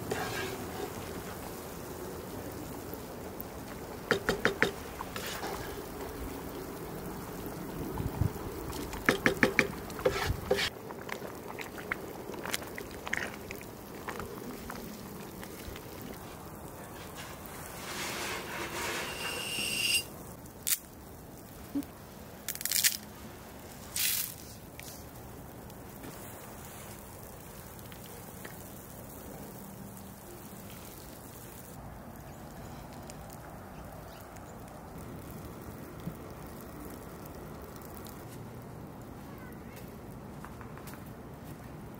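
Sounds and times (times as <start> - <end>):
wooden spoon stirring: 0.0 - 1.5, 4.1 - 6.2, 8.7 - 19.8
broth simmering with bubbles: 0.0 - 40.4
wooden spoon knocking on pan: 4.1 - 4.8, 9.0 - 10.6.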